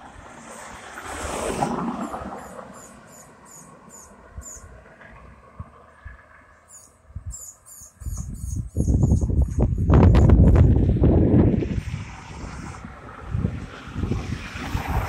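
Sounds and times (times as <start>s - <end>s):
road noise: 0.0s - 15.0s
crickets chirping: 2.0s - 4.7s, 6.7s - 9.2s
wind rumble on microphone: 7.0s - 15.0s.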